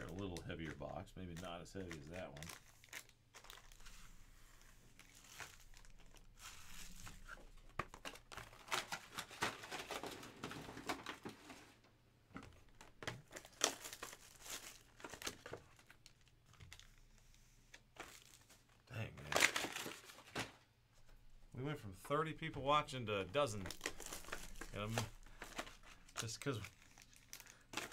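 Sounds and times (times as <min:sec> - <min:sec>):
plastic wrapping crinkling: 0:00.0 - 0:11.8, 0:12.4 - 0:21.2, 0:22.2 - 0:27.9.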